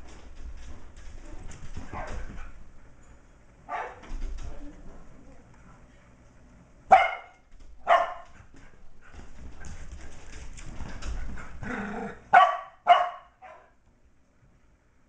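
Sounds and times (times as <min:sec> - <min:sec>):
dogs barking: 0:03.7 - 0:04.0, 0:06.9 - 0:08.3, 0:12.3 - 0:13.8.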